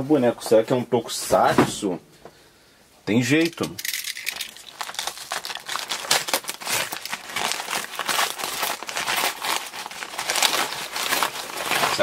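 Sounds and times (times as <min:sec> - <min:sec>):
paper wrapping crinkling: 0:03.9 - 0:12.0.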